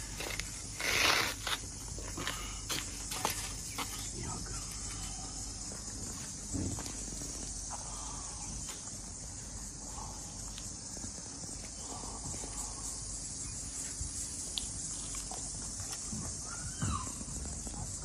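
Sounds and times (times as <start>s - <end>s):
insects buzzing: 0.0s - 18.0s
faint ticks: 10.4s - 11.8s, 14.4s - 15.4s.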